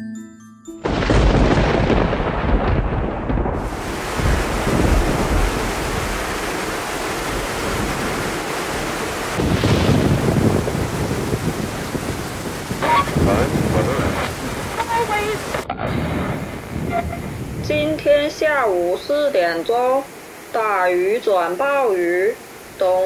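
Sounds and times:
light mallet music: 0:00.0 - 0:01.1
rumbling thunder: 0:00.8 - 0:19.3
heavy rain downpour: 0:00.9 - 0:23.0.

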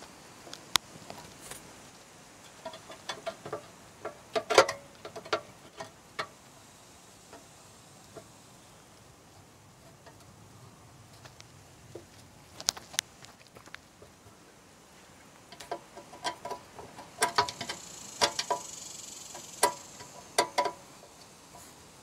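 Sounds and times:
screwdriver clicking on metal: 0:15.5 - 0:18.7.

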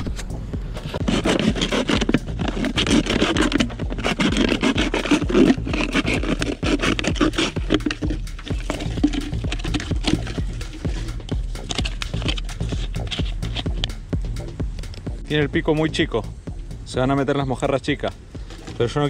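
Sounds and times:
knife sawing plastic bottle: 0:00.8 - 0:13.9, 0:18.4 - 0:18.9.

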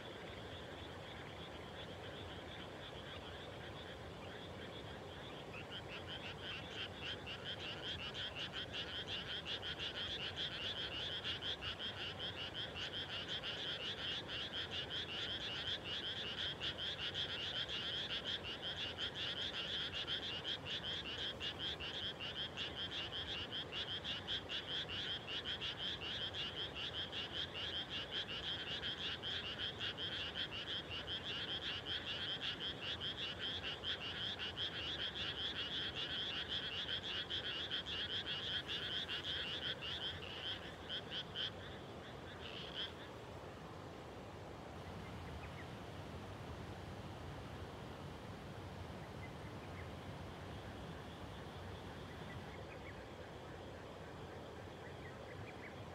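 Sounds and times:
chorus of frogs calling: 0:00.0 - 0:43.2.

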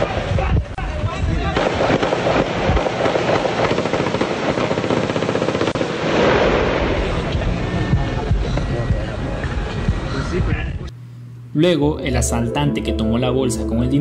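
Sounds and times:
rapid rifle fire: 0:01.4 - 0:07.2.

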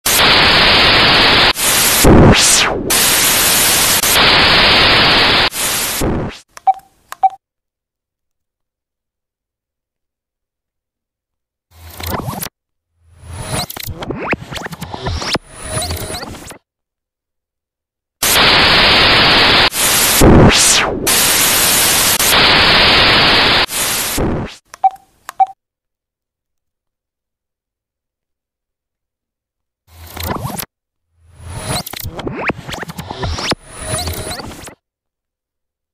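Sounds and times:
tv static hiss: 0:00.1 - 0:06.5, 0:18.2 - 0:24.6, 0:32.6 - 0:34.7.

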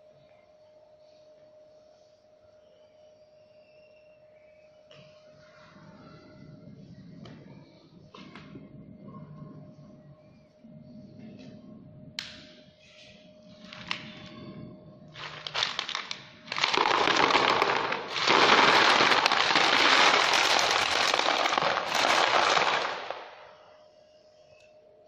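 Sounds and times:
gravel clattering into plastic crate: 0:15.2 - 0:23.4.

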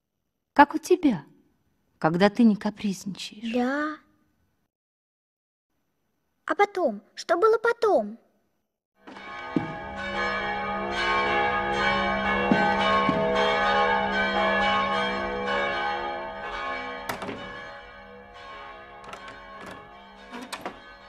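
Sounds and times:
bells chiming: 0:09.2 - 0:21.0
sharp clicks and knocks: 0:17.1 - 0:17.6, 0:19.0 - 0:20.9.

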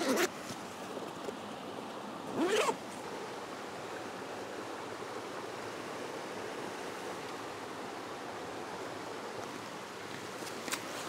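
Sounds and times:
backpack zipper pulled open: 0:00.0 - 0:00.3, 0:02.3 - 0:02.8
stream rushing: 0:00.0 - 0:11.0.

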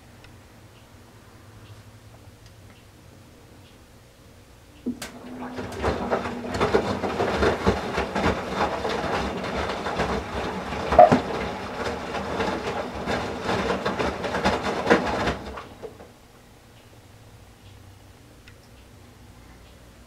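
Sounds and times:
water sloshing: 0:04.9 - 0:13.9
towels thumping against drum: 0:04.9 - 0:16.0
washing machine drum tumbling: 0:04.9 - 0:16.1.

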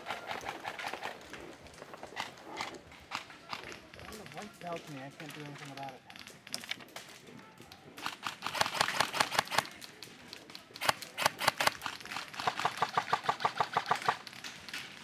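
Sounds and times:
airsoft rifle firing bursts: 0:08.0 - 0:09.8, 0:10.8 - 0:14.4.

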